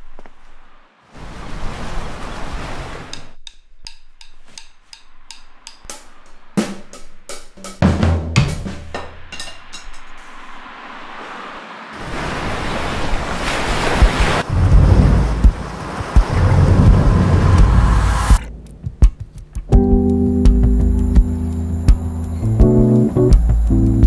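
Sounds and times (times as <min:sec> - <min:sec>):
ocean surf rushing: 0:00.9 - 0:03.3, 0:09.2 - 0:18.6
drum kit playing: 0:03.1 - 0:10.5, 0:14.0 - 0:24.0.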